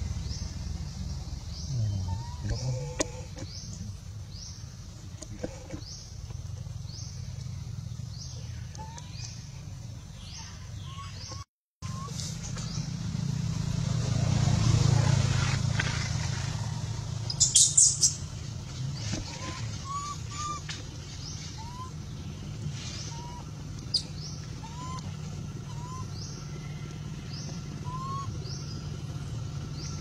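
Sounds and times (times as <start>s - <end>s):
passing vehicle: 0.0s - 10.3s, 11.2s - 30.0s.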